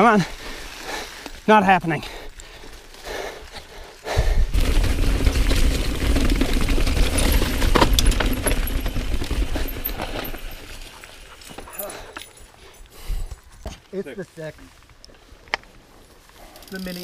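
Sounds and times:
bike rattling over rocks: 4.5s - 12.5s, 16.5s - 17.0s.

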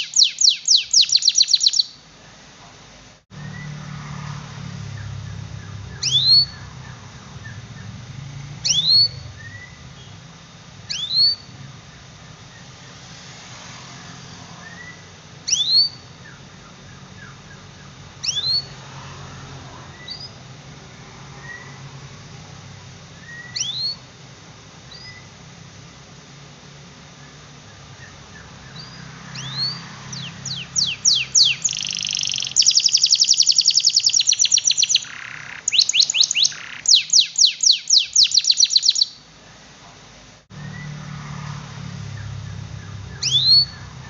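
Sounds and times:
soft canary chirps: 0.0s - 2.4s, 4.9s - 13.1s, 14.3s - 18.8s, 19.9s - 20.4s, 21.4s - 21.8s, 23.2s - 24.2s, 24.8s - 25.4s, 27.2s - 39.6s, 42.1s - 44.0s
canary rising call: 3.4s - 11.7s, 21.1s - 22.0s, 28.0s - 39.1s, 40.5s - 44.0s.

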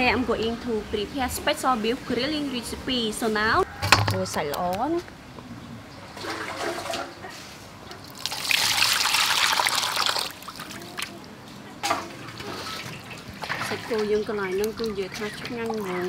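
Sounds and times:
water running into metal bowl: 8.1s - 10.7s.

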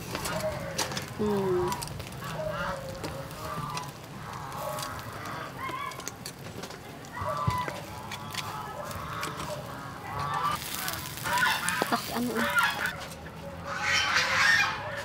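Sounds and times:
fowl honking: 7.2s - 13.0s, 13.7s - 15.0s.

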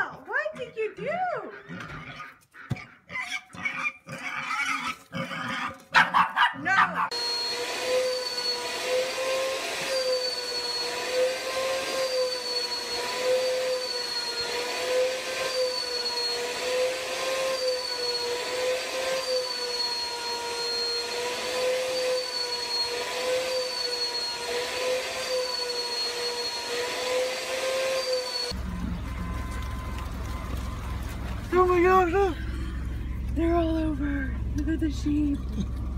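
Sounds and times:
vacuum cleaner motor whine: 7.1s - 33.4s
car engine rumbling: 28.6s - 35.9s.

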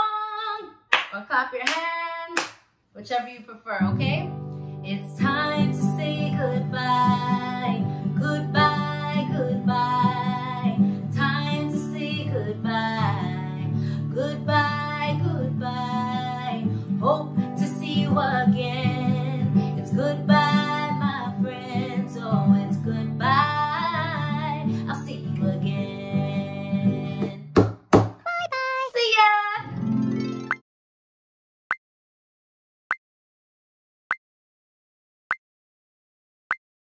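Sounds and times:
woman singing: 0.0s - 2.4s, 3.0s - 27.6s, 28.3s - 29.7s.

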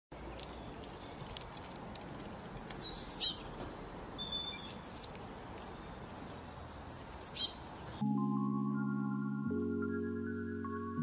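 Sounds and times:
small bird chirping: 2.6s - 8.0s.

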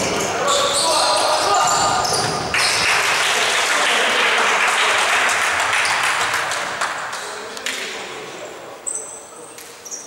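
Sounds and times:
applause: 2.5s - 7.8s.

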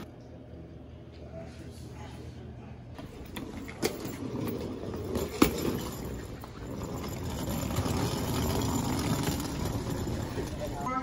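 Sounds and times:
suitcase wheels rumbling on asphalt: 3.7s - 11.0s.

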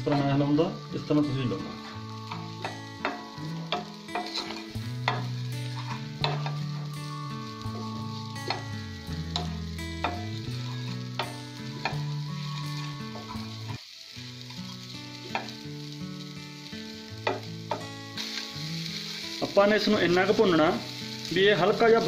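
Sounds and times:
bread sizzling in a pan: 0.0s - 22.0s
spatula scraping and tapping pan: 1.8s - 6.6s, 9.3s - 10.4s, 17.2s - 17.9s.

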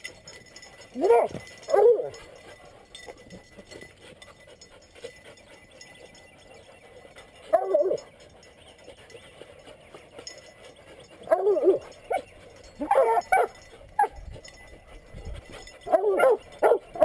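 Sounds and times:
faint dog sounds: 0.0s - 17.0s
dog barking: 12.8s - 14.1s, 15.9s - 17.0s.

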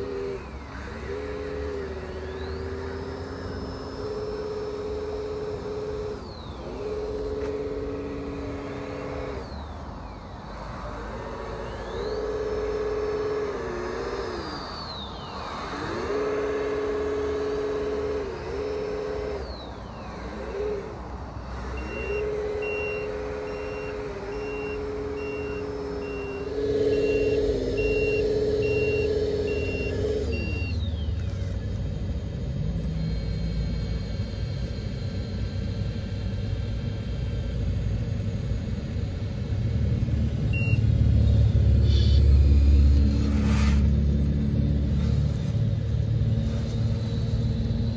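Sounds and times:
reversing alarm beeping: 0.0s - 35.8s, 40.2s - 47.9s
simulated diesel engine sound: 0.0s - 47.9s.

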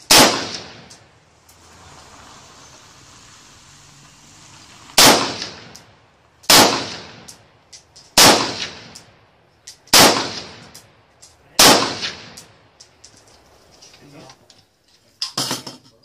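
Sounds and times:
rifle shots with echo: 0.0s - 0.9s, 5.0s - 5.8s, 6.5s - 7.4s, 8.2s - 9.1s, 9.9s - 10.8s, 11.6s - 12.6s.

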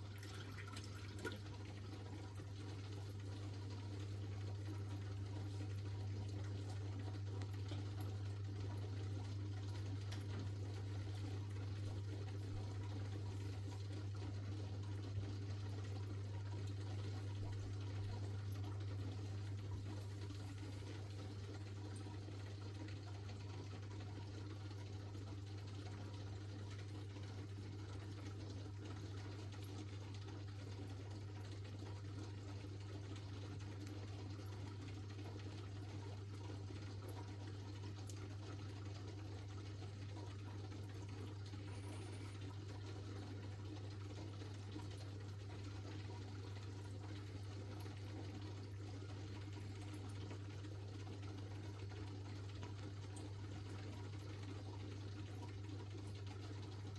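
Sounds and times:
aquarium filter hum: 0.0s - 56.9s
moving water: 0.0s - 56.9s.

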